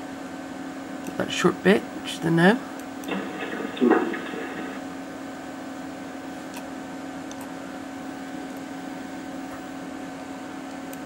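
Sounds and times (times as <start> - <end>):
low electrical hum: 0.0 - 11.0
faint hiss: 3.1 - 4.8.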